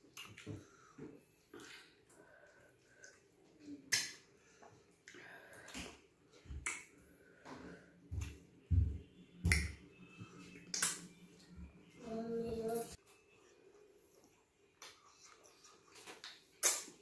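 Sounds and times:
wet lip smacks and clicks: 14.8 - 17.0.

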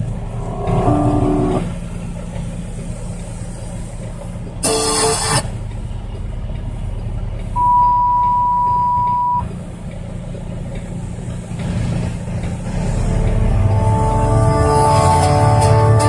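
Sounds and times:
truck engine running: 0.0 - 16.0
steady high beep: 7.6 - 9.5.

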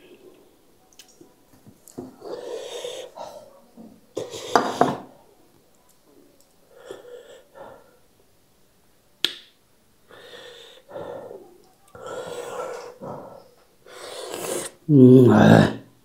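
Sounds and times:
breathing and sniffing: 2.2 - 3.6, 10.1 - 14.8
person eating: 11.5 - 15.0.

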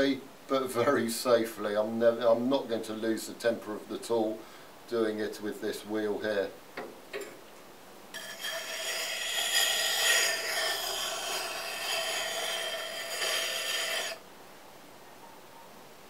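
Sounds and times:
axe blade grinding on wet stone: 8.2 - 14.2.

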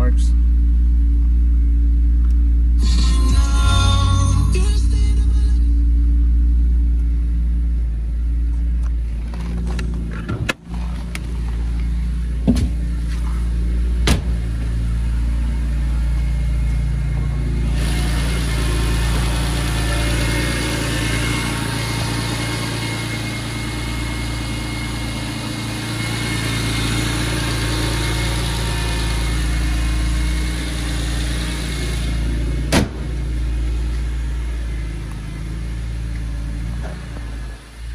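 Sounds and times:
car engine idling: 0.0 - 37.9
sharp engine knocks: 12.4 - 12.8, 14.0 - 14.4, 32.7 - 33.2.

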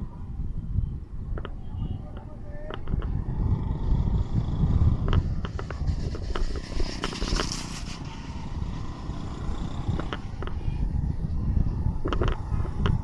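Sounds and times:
rickshaw engine rumble: 1.4 - 13.0
hissing rush: 4.2 - 10.9.

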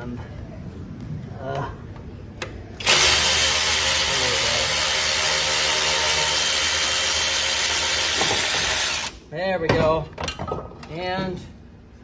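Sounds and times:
power ratchet hissing: 2.8 - 9.2.

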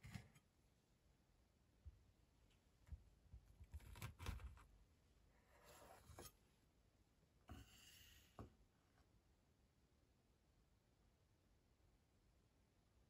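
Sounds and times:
cake server scraping: 5.6 - 6.4.

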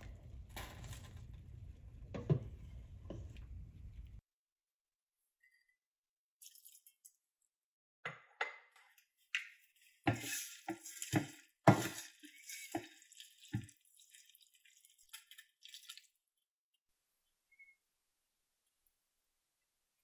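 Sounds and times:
water hissing in pan: 10.1 - 15.4.

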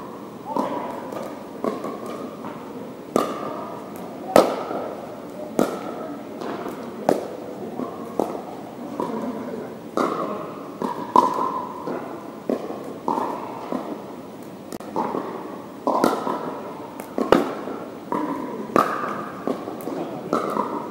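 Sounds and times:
paddles hitting a plastic ball: 0.5 - 5.0, 5.6 - 9.2, 10.0 - 14.0, 14.7 - 20.9.

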